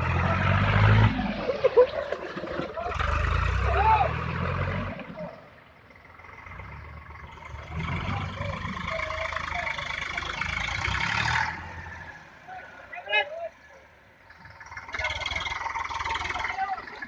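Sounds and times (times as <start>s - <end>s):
tractor diesel engines: 0.0s - 17.0s.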